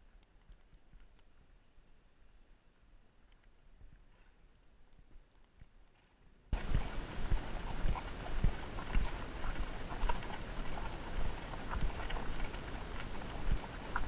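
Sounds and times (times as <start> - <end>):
horse hoofbeats on gravel: 6.5 - 14.0.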